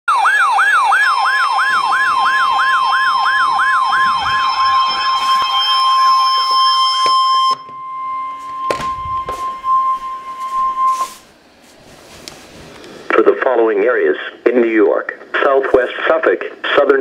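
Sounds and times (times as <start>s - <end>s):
fast sweeping siren: 0.1s - 11.3s
steady high beep: 3.3s - 11.2s.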